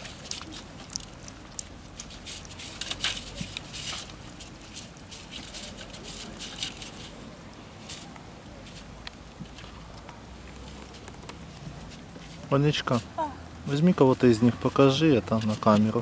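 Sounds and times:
puppies lapping from plate: 0.0 - 7.2.

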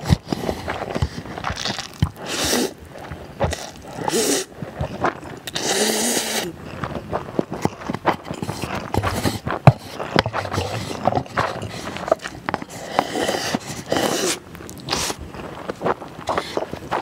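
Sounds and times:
noodles being slurped: 0.0 - 17.0
wet chewing: 0.0 - 17.0.

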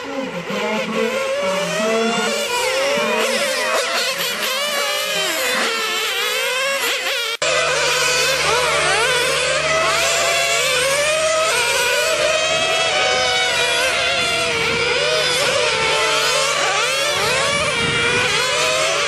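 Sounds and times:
rc racing cars whining: 0.0 - 19.0
steady low hum: 7.4 - 19.0.

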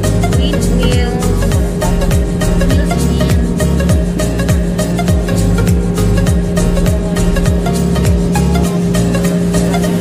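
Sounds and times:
kick drum: 0.3 - 8.3.

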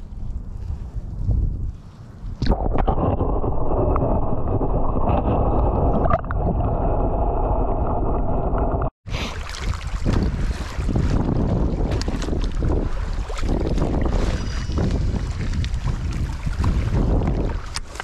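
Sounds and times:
muffled underwater rumble: 0.0 - 8.9, 9.8 - 17.8
wind buffeting microphone: 0.0 - 8.9, 9.5 - 18.0
water sloshing and bubbling: 0.0 - 18.0
water splash: 2.4 - 18.0.

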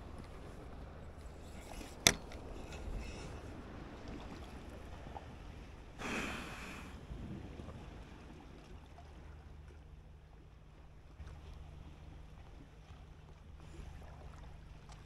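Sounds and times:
small waves lapping on rocks: 0.0 - 9.8.

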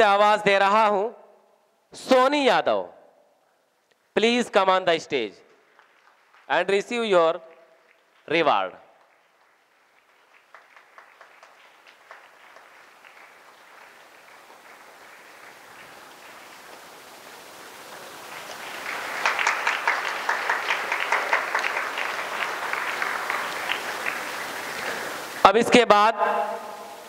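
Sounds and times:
audience applause: 5.6 - 25.4.

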